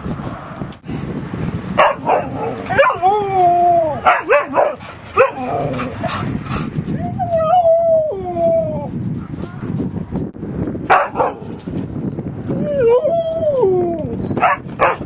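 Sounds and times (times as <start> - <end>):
dog barking: 1.8 - 3.0, 4.0 - 6.2, 10.9 - 11.5, 14.4 - 15.0
dog howling call: 2.2 - 6.2, 7.0 - 8.9.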